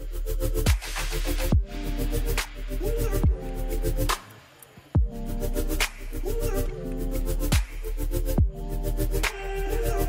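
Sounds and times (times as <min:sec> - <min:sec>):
deep kick drums: 0:01.5 - 0:01.7, 0:03.2 - 0:03.4, 0:05.0 - 0:05.2, 0:07.5 - 0:07.7, 0:08.4 - 0:08.6
held synth chords: 0:05.0 - 0:10.0.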